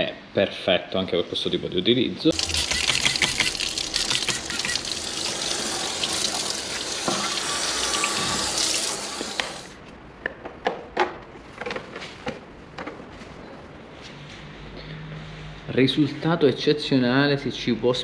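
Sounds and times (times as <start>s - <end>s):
tap water splashing on plastic: 7.0s - 7.4s.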